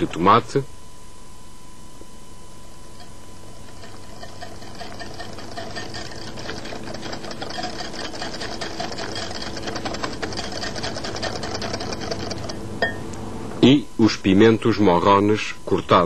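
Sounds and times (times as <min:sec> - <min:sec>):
whisk clicking against glass bowl: 0:03.0 - 0:13.0.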